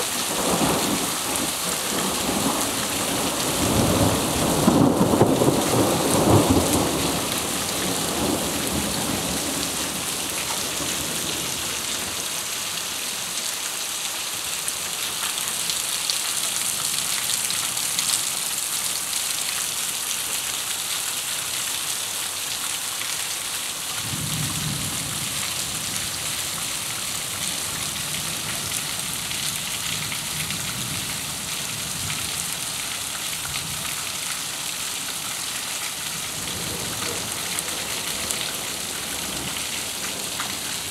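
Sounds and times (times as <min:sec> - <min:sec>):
heavy rain on pavement: 0:00.0 - 0:40.9.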